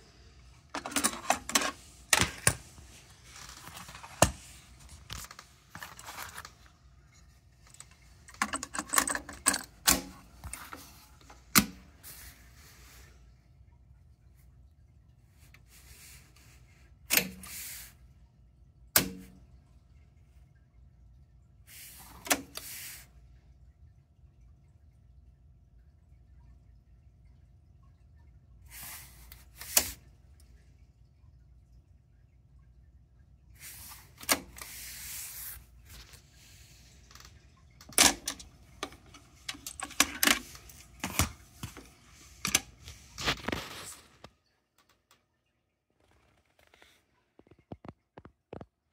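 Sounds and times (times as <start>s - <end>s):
cassette deck controls clicking: 37.8s - 42.7s.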